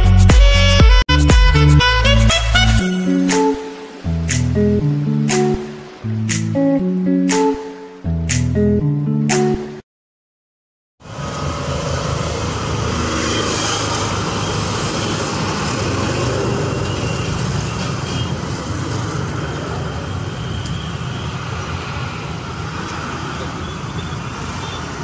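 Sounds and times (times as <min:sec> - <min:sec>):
passing cars: 0:11.0 - 0:25.0.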